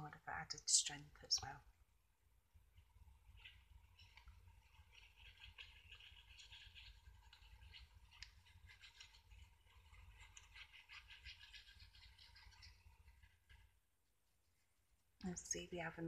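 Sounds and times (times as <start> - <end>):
rapid scratchy ticking: 3.1 - 13.7.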